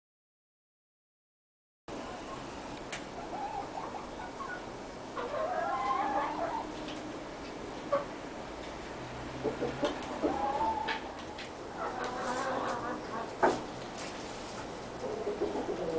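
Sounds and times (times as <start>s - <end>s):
hens clucking and calling: 3.2s - 7.0s, 9.4s - 13.6s, 15.0s - 15.9s.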